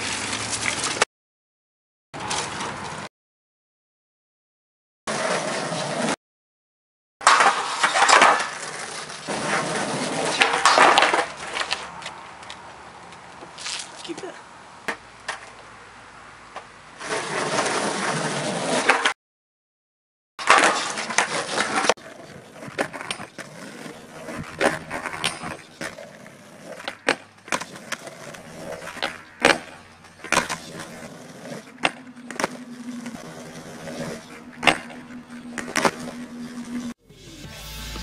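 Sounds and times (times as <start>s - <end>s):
skateboard wheels rolling on concrete: 0.0s - 1.1s, 2.2s - 3.1s, 5.1s - 6.2s, 7.2s - 19.2s, 20.4s - 38.0s
skateboard clacks and knocks: 7.2s - 11.8s, 20.4s - 36.9s.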